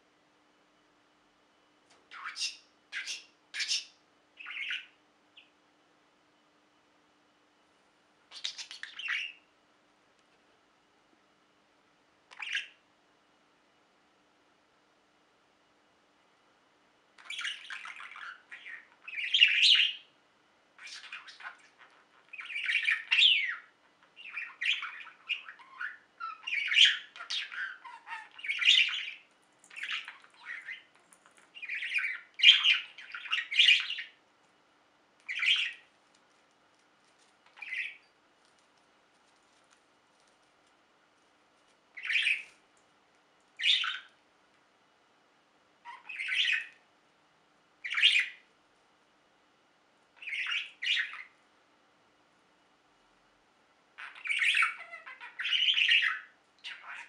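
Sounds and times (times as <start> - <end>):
budgerigar chirping and warbling: 2.1 - 5.5, 8.3 - 9.4, 12.3 - 12.8, 17.2 - 20.1, 20.8 - 30.9, 31.5 - 34.2, 35.3 - 35.9, 37.6 - 38.1, 42.0 - 42.5, 43.6 - 44.2, 45.8 - 46.8, 47.8 - 48.4, 50.2 - 51.4, 54.0 - 57.0.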